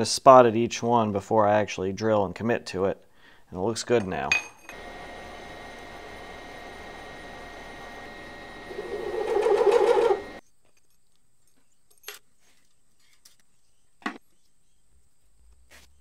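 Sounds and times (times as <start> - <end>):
milling cutter boring into metal: 4.7 - 10.4.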